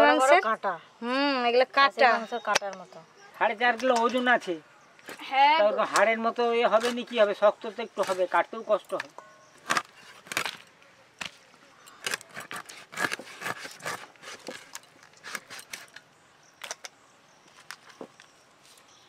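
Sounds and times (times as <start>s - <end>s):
blade cracking through fish bones: 9.6s - 10.6s.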